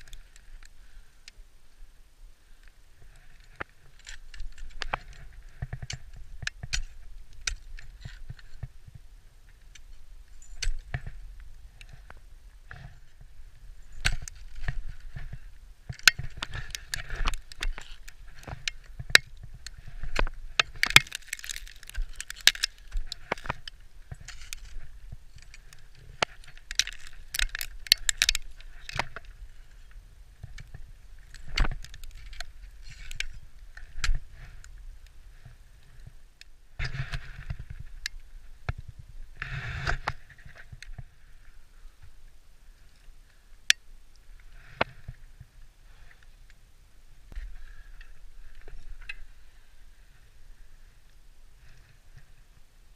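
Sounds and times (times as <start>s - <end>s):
ice axes and boots crunching ice: 13.8s - 29.2s.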